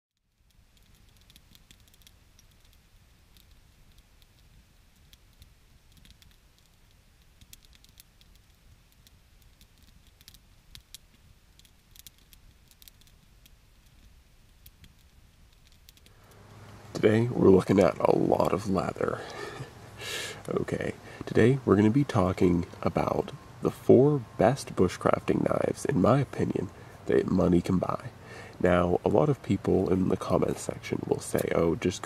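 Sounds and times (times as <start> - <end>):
campfire crackling and popping: 0.2 - 32.0.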